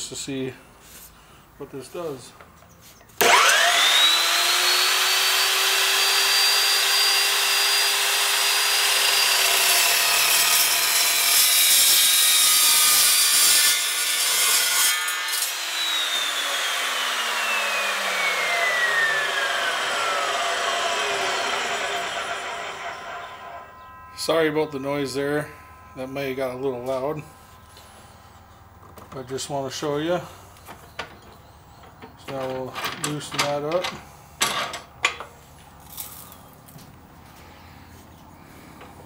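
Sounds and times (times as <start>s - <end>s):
saw cutting through steel: 3.2s - 28.6s
saw motor whining: 3.2s - 31.1s.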